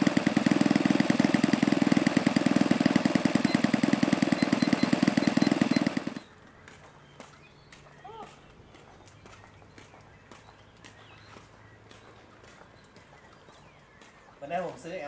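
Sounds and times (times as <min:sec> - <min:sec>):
model engine idling: 0:00.0 - 0:06.4.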